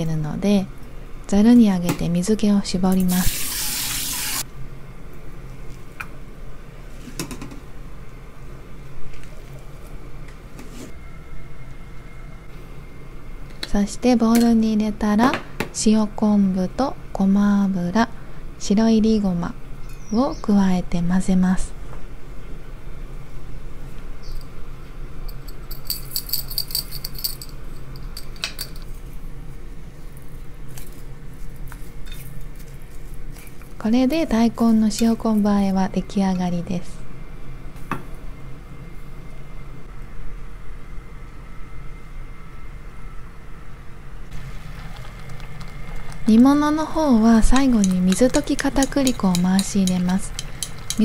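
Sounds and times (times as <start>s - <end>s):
seeds rattling in glass jar: 44.4s - 46.5s.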